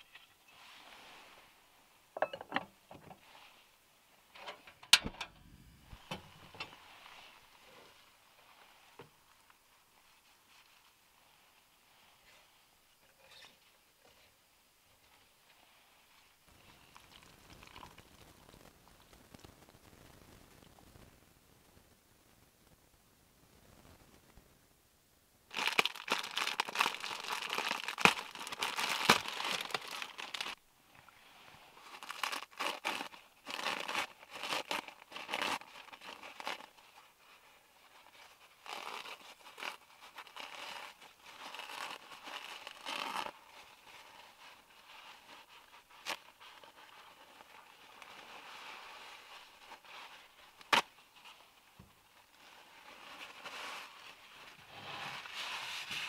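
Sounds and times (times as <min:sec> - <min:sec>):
paper towels crinkling and rustling: 0:25.5 - 0:30.6, 0:31.3 - 0:56.0.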